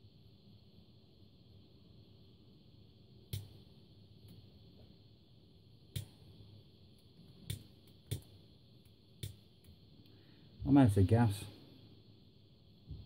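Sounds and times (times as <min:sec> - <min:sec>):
torch igniter clicks: 0:03.3 - 0:03.6, 0:05.9 - 0:06.2, 0:07.0 - 0:09.8.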